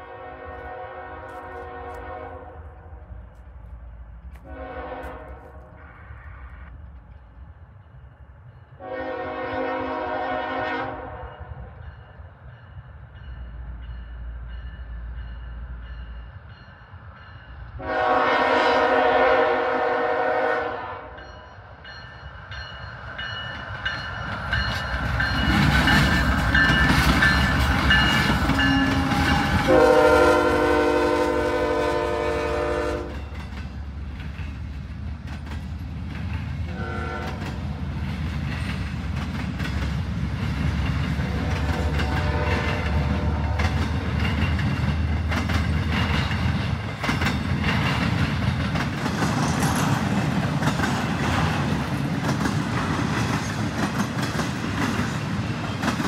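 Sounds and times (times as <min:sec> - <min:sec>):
locomotive horn blasts: 0:00.0 - 0:02.6, 0:04.4 - 0:05.6, 0:08.8 - 0:11.4, 0:17.8 - 0:21.2, 0:28.5 - 0:33.3, 0:36.7 - 0:37.5, 0:41.3 - 0:43.8
freight cars running on rails: 0:21.2 - 0:56.0.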